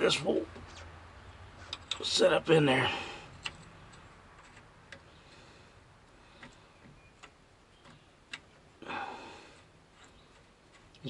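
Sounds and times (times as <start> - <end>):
metal clicks and ticks: 3.3 - 5.1, 6.4 - 8.7.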